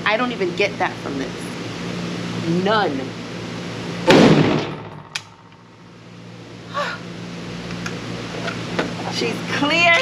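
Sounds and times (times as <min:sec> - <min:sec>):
ventilation hum: 0:00.0 - 0:10.0
gunshot echo: 0:04.1 - 0:05.4.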